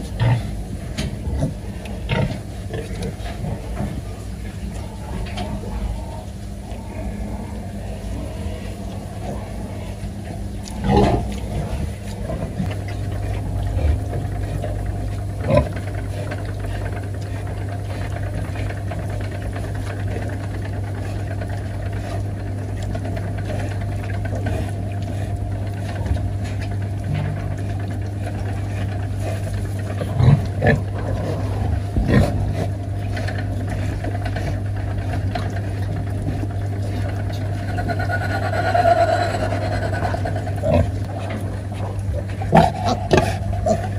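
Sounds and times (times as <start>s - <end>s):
low mechanical hum: 0.0s - 43.9s
piglets calling: 37.1s - 41.2s.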